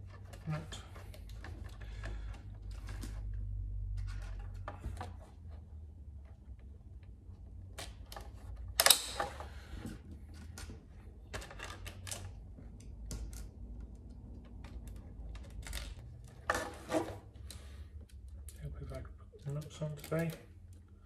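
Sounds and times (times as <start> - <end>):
plastic parts and screws clicking: 6.2 - 21.0.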